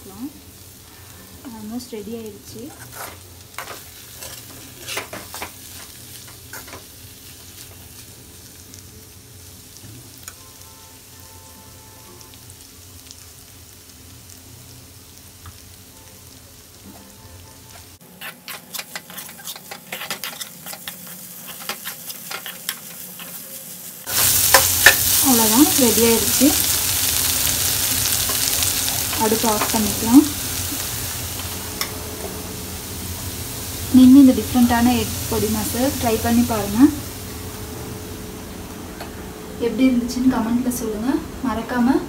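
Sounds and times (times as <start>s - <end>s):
food sizzling gently: 0.0s - 42.0s
spoon scraping metal pan: 2.7s - 5.9s, 17.7s - 26.3s.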